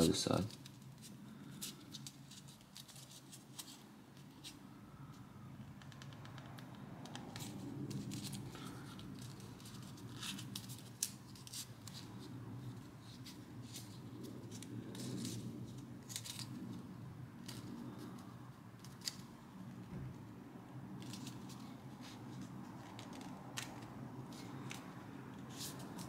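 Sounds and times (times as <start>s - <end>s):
crisp paper clicks: 21.0s - 26.0s.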